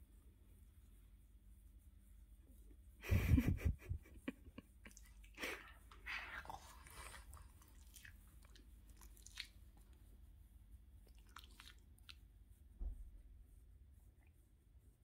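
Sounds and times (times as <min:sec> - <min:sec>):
soft low thump: 0:12.8 - 0:13.4.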